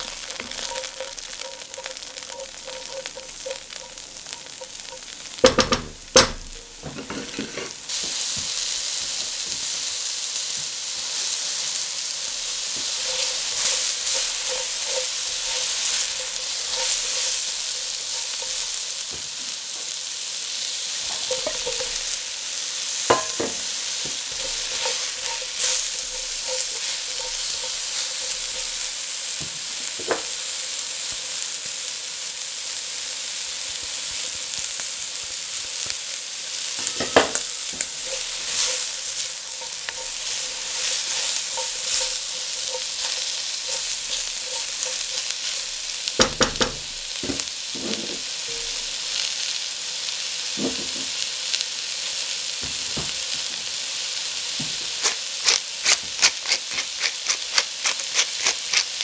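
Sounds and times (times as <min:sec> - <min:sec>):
spatula scraping and knocking pan: 0:00.0 - 0:08.6, 0:12.5 - 0:19.9, 0:21.0 - 0:22.3, 0:23.0 - 0:29.0, 0:36.8 - 0:48.8, 0:54.6 - 0:59.0
vegetables sizzling in oil: 0:00.0 - 0:59.0.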